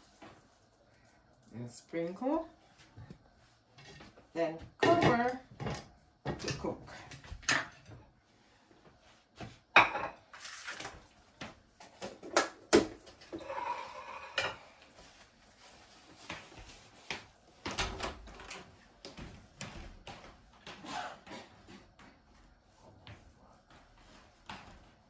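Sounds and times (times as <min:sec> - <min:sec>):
pots and utensils clinking: 0:13.2 - 0:14.8.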